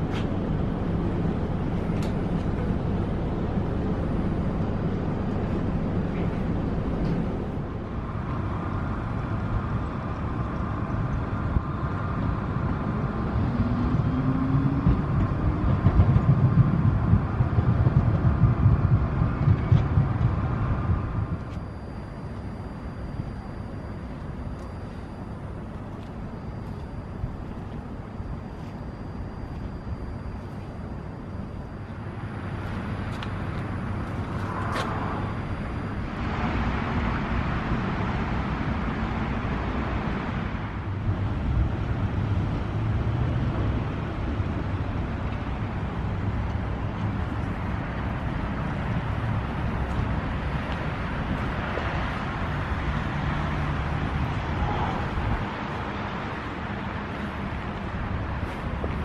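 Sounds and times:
faint high whine: 0.0 - 59.0
low hum: 0.0 - 59.0
tram low rumble: 0.0 - 59.0.

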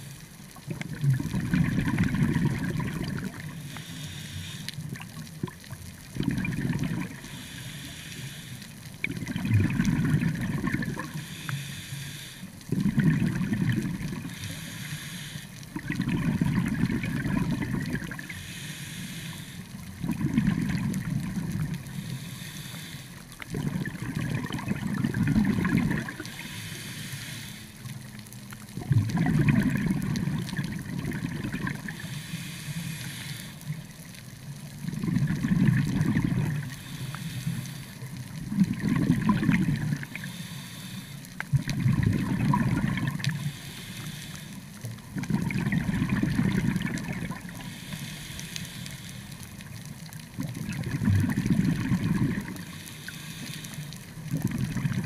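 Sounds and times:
regulator inhale hiss: 0.0 - 0.4, 3.3 - 5.0, 7.1 - 9.0, 11.0 - 12.7, 14.2 - 15.8, 18.1 - 20.0, 21.8 - 23.4, 26.1 - 28.3, 31.7 - 33.9, 36.4 - 38.3, 39.7 - 41.6, 43.0 - 45.0, 47.3 - 49.8, 52.4 - 54.3
exhaled bubbles underwater: 0.0 - 3.7, 4.8 - 7.5, 8.9 - 11.3, 12.6 - 14.6, 15.7 - 18.5, 19.8 - 22.1, 23.3 - 26.6, 28.6 - 32.2, 33.6 - 36.9, 38.0 - 40.4, 41.4 - 43.6, 44.7 - 47.8, 49.5 - 53.0, 53.9 - 55.0.

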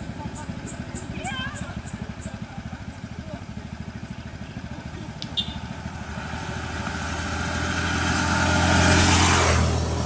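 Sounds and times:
auto-rickshaw engine passing: 0.0 - 10.0.

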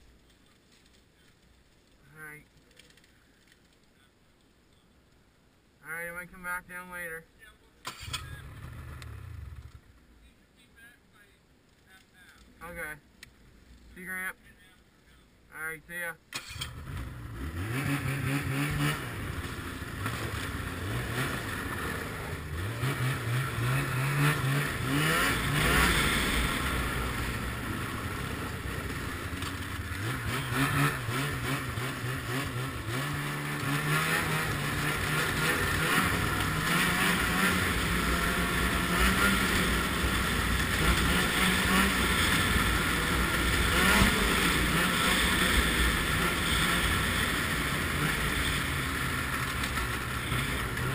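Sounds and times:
snowmobile engine accelerating: 16.6 - 50.9.

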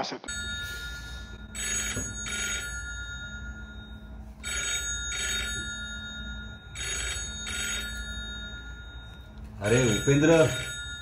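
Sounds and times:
telephone double ring: 0.3 - 11.0.

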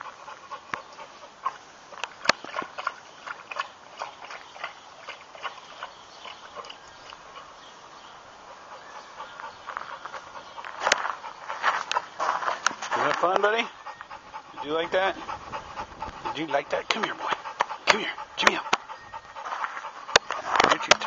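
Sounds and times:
dog lapping water from bowl: 2.4 - 7.2.

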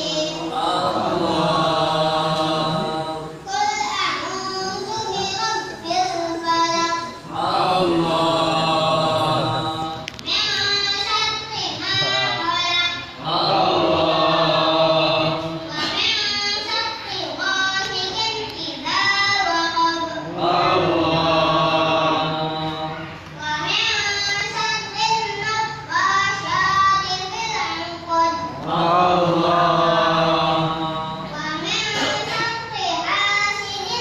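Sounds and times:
child chanting: 0.0 - 34.0.

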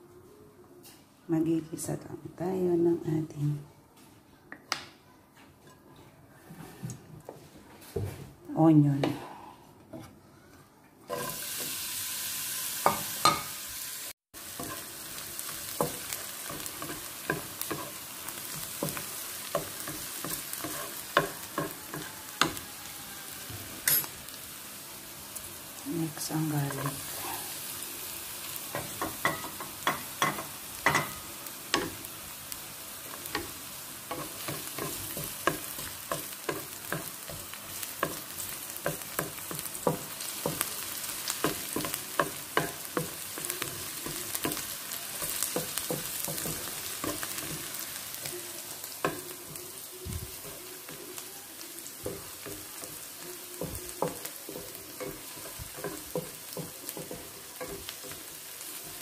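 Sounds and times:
onion and garlic sizzling in oil: 11.1 - 59.0
wooden spatula scraping a pan: 14.6 - 22.1.

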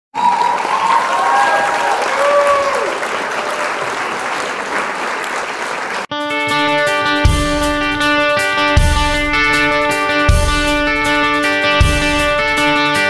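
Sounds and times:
crowd applauding: 0.1 - 6.1.

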